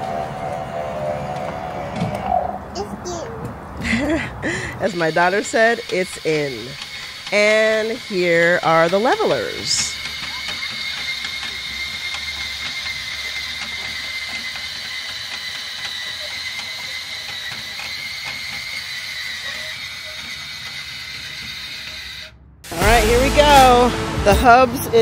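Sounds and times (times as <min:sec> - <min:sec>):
electric motor whine with gears: 0:00.0 - 0:02.7, 0:03.8 - 0:23.0.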